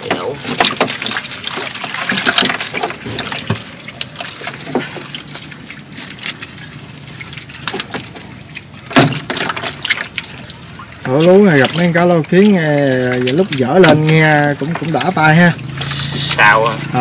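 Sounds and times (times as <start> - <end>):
loud water splash: 0.0 - 17.0
water splashing and trickling: 0.0 - 17.0.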